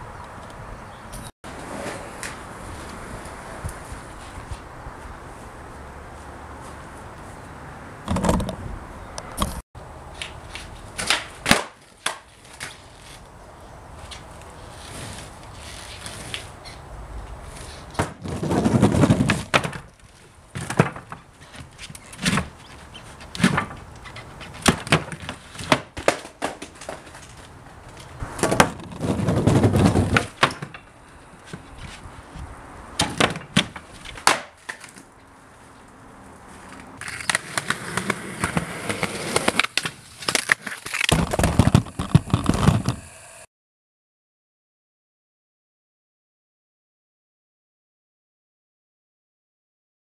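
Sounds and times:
skateboard rolling on concrete: 0.2s - 43.5s
skateboard clacking on ground: 1.5s - 4.6s, 9.3s - 13.2s, 17.5s - 32.0s, 33.0s - 35.2s, 36.6s - 43.0s.

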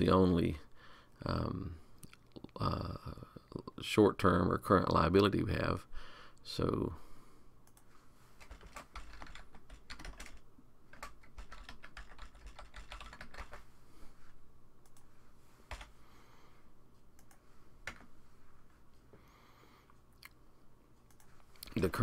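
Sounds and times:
typing on computer keyboard: 8.4s - 13.6s.

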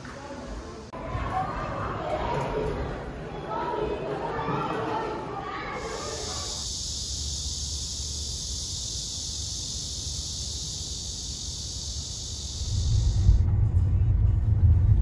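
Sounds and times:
cicadas buzzing: 4.3s - 13.4s
low rumble: 12.6s - 15.0s.

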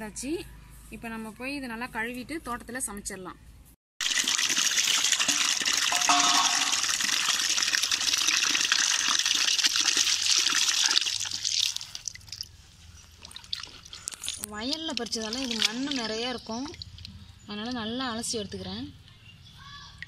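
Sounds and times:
water pouring into plastic tub: 4.0s - 12.5s, 13.2s - 17.1s.

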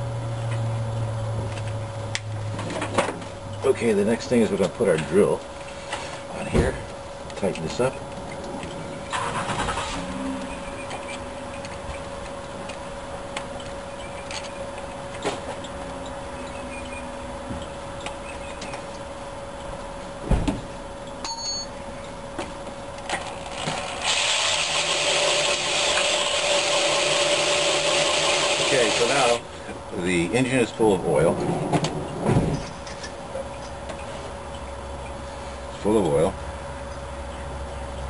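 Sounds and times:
electric drill running: 23.2s - 29.4s.

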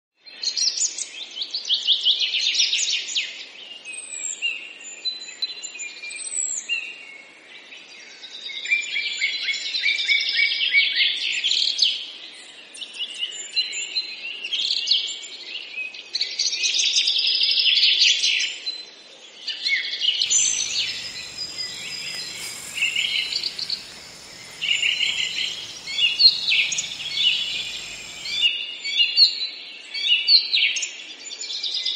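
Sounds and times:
small birds chirping: 20.2s - 28.5s.

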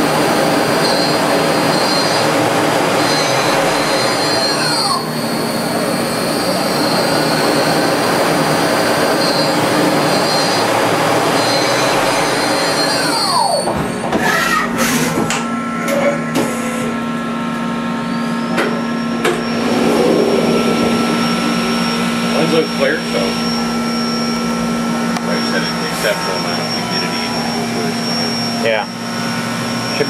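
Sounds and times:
lathe running with high whine: 0.0s - 30.0s
steady machine hum: 0.0s - 30.0s
spindle winding down: 18.5s - 30.0s.

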